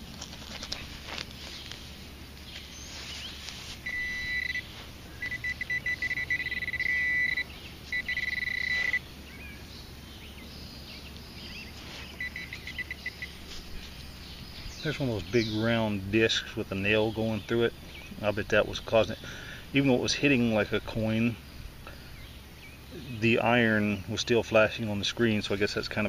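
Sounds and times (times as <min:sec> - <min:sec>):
soil scraping: 0:00.0 - 0:06.0, 0:11.6 - 0:14.0
metal detector rapid beeping: 0:03.8 - 0:09.0, 0:12.2 - 0:13.4.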